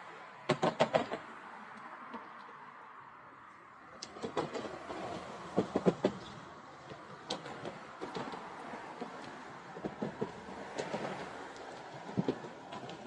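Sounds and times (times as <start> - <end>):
road traffic passing: 0.0 - 13.0
clunks and knocks: 4.1 - 11.4.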